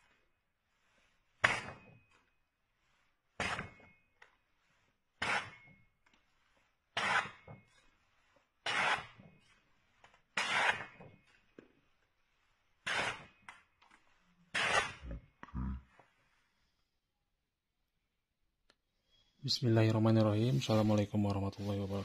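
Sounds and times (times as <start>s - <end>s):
knife slicing paper: 4.5s - 11.3s.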